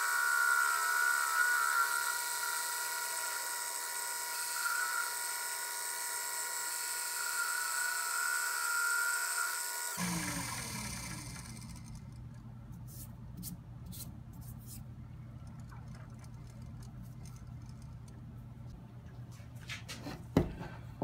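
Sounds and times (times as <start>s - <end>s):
lathe motor whine spinning down: 0.0s - 12.2s
low steady hum: 10.0s - 21.0s.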